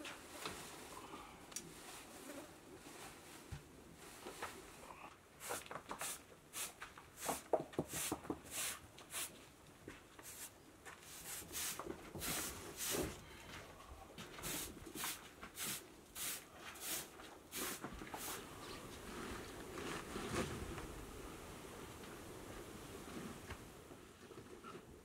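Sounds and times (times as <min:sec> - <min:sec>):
broom sweeping hard floor: 0:05.4 - 0:09.5, 0:10.2 - 0:13.2, 0:14.3 - 0:18.4.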